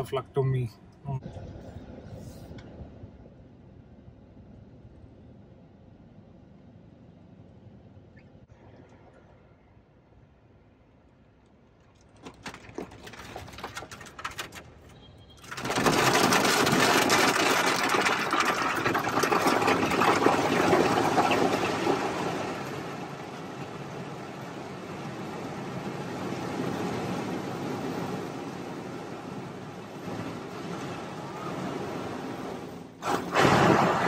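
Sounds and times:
water drumming on a car: 0:12.0 - 0:14.8, 0:15.4 - 0:29.4.

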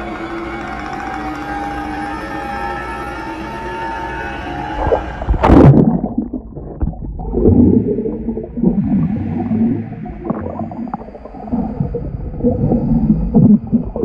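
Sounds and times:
muffled underwater bubbling: 0:04.8 - 0:14.0.

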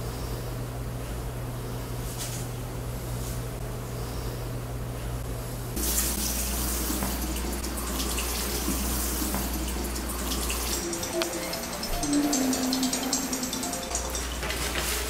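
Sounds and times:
low steady hum: 0:00.0 - 0:15.0
faucet water running into sink: 0:05.8 - 0:15.0.

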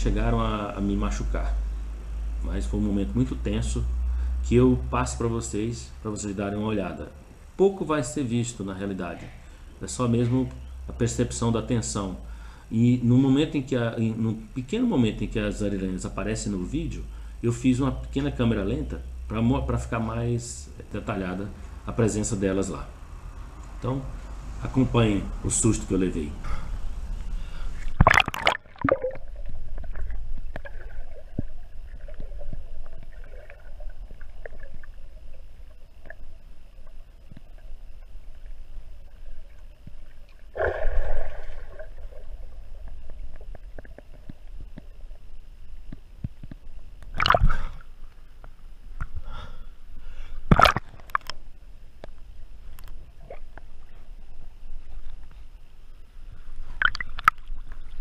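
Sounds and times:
water gurgling underwater: 0:27.9 - 0:38.2, 0:39.1 - 0:45.0, 0:47.1 - 0:48.0, 0:56.7 - 0:58.0.

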